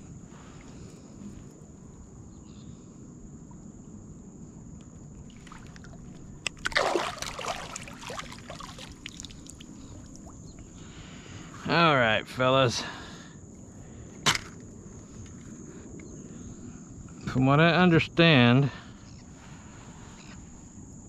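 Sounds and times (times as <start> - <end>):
water splashing: 5.2 - 10.6.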